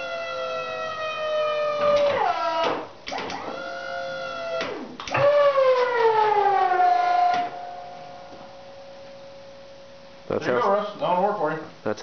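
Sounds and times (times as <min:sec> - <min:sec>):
hydraulic pump motor whining: 0:00.0 - 0:07.6
faint steady hum: 0:00.0 - 0:12.0.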